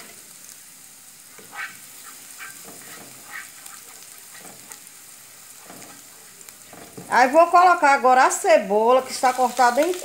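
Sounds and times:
garlic sizzling in oil: 0.0 - 10.0
spatula scraping pan: 1.3 - 7.2.

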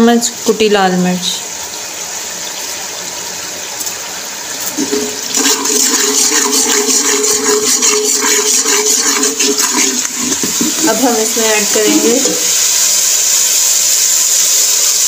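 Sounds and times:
onions sizzling in hot oil: 0.0 - 15.0
spoon stirring and scraping pot: 4.8 - 11.0.

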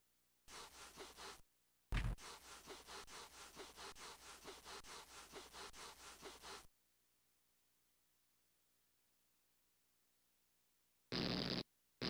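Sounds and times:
loud thump: 1.9 - 2.2.

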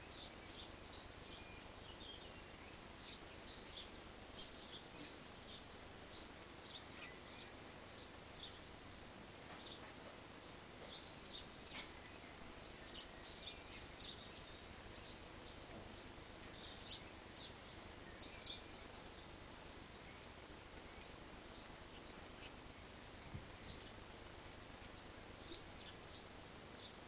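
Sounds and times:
steady hiss: 0.0 - 27.0
high bird chirps: 0.6 - 15.2.

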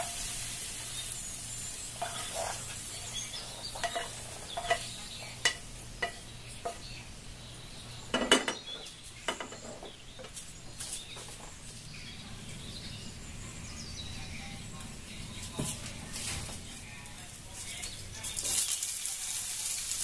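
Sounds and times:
spatula clattering: 1.7 - 7.0, 8.1 - 11.4
wooden spatula scraping frying pan: 1.8 - 6.9, 8.2 - 11.4.

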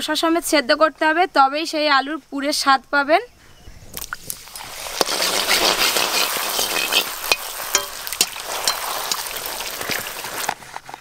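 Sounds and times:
food sizzling in hot oil: 4.2 - 10.6
metal skimmer stirring and splashing: 4.3 - 10.6.

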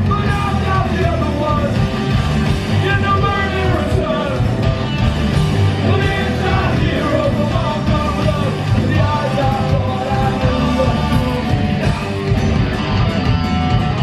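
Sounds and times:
punk rock band playing: 0.0 - 14.0
shouted vocals: 2.7 - 4.6, 5.8 - 12.2.

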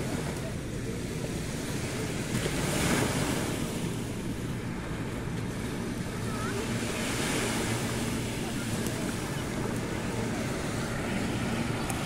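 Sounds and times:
small waves breaking on sand: 0.0 - 12.0.

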